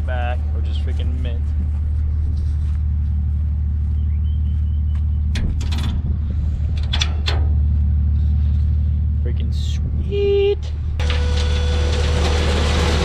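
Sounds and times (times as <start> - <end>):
low engine drone: 0.0 - 13.0
metal gate clanking: 5.3 - 6.1, 6.7 - 7.6.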